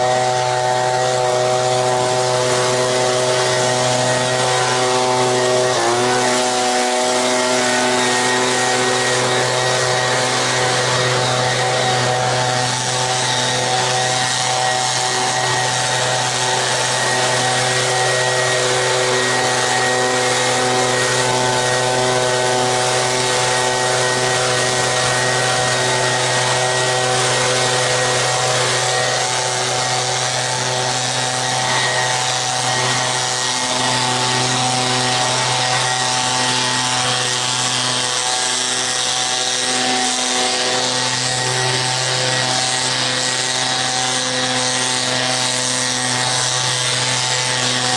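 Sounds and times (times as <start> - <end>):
leaf blower running: 0.0 - 47.9.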